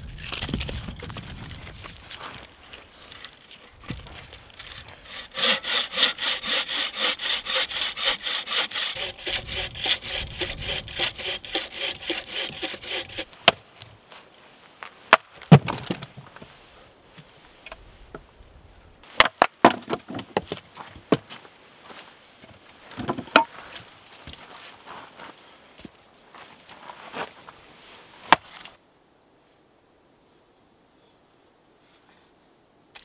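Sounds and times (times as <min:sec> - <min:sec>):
hand saw cutting log: 0:04.5 - 0:13.4
wood splitting strikes: 0:04.6 - 0:13.6, 0:15.1 - 0:16.1, 0:19.2 - 0:20.4.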